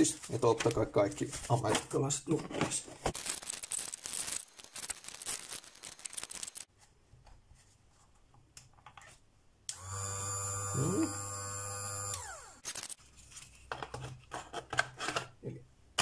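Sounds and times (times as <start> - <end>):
cardboard packaging rustling: 0.0 - 6.8
sharpener motor humming: 9.7 - 13.0.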